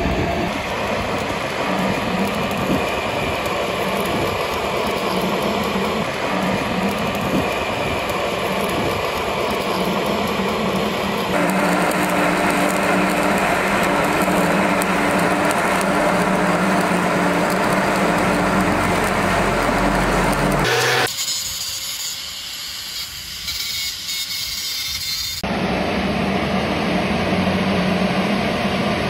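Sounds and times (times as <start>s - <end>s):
steady low hum: 0.0s - 21.1s
welding arc crackling and hissing: 0.0s - 25.4s.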